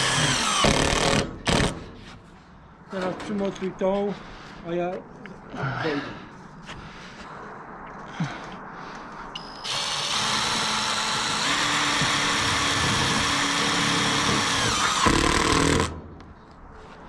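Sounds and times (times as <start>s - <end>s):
cordless drill drilling into metal: 0.0s - 1.7s, 9.6s - 16.0s.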